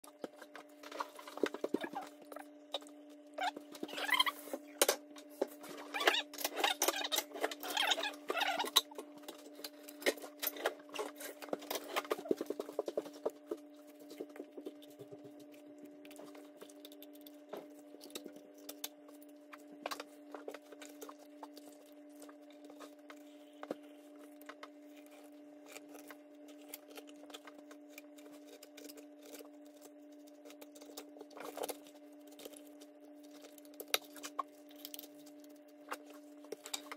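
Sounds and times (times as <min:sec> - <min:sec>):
knife cutting and scraping fish: 0:00.1 - 0:36.9.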